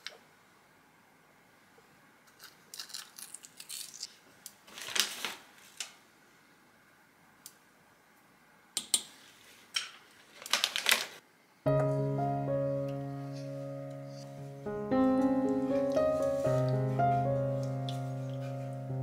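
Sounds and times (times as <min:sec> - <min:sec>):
piano music: 0:11.7 - 0:19.0.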